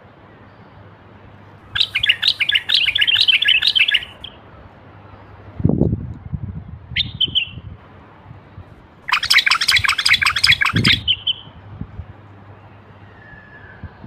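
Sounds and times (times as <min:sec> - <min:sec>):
bird whistled note: 0:01.8 - 0:04.3
bird harsh chattering: 0:01.8 - 0:04.4, 0:09.1 - 0:11.5.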